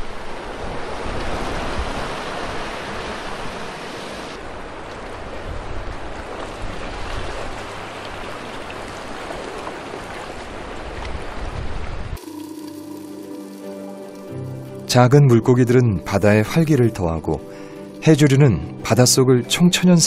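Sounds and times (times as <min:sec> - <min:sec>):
seawater sloshing around rocks: 0:00.0 - 0:12.1.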